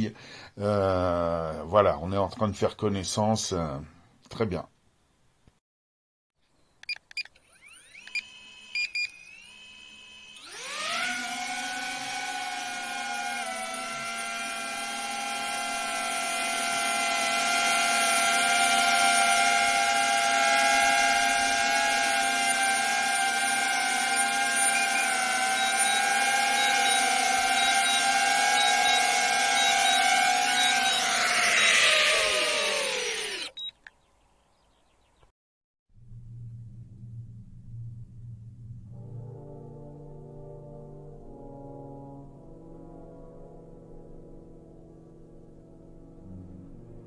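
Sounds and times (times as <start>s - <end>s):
drone motors whining: 7.3s - 33.6s
short beeps: 33.5s - 33.8s.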